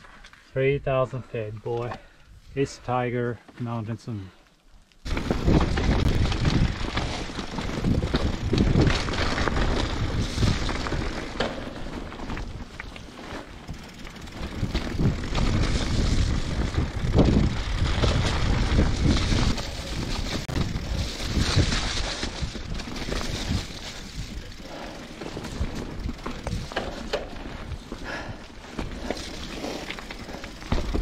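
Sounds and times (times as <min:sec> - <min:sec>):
bike tyre and frame noise: 0:04.3 - 0:31.0
wind buffeting microphone: 0:05.1 - 0:11.2, 0:13.7 - 0:29.1.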